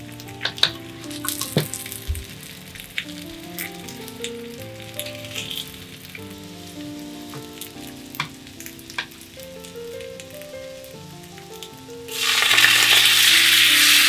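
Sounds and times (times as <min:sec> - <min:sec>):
fish sizzling in a frying pan: 0:00.0 - 0:14.0
chopsticks clicking on pan: 0:00.4 - 0:01.9, 0:07.4 - 0:09.2.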